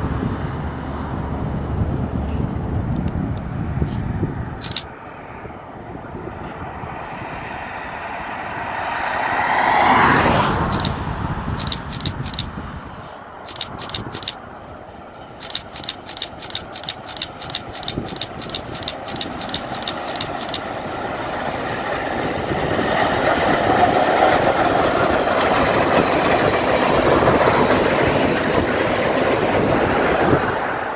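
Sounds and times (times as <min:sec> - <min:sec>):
camera shutter clicks: 0:04.6 - 0:04.9, 0:10.7 - 0:11.0, 0:11.6 - 0:12.5, 0:13.5 - 0:14.4, 0:15.4 - 0:20.6
steam train passing: 0:10.6 - 0:30.9.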